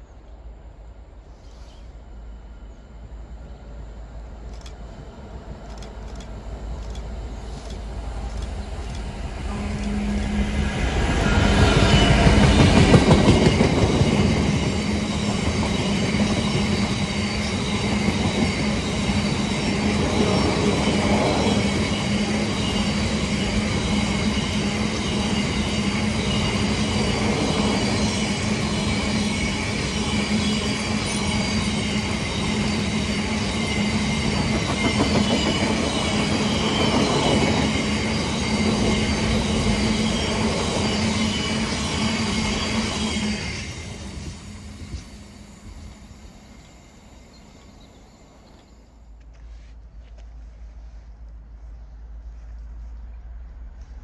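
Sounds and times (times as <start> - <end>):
constant low hum: 0.0 - 10.8, 48.5 - 54.0
diesel locomotive engine: 0.0 - 54.0.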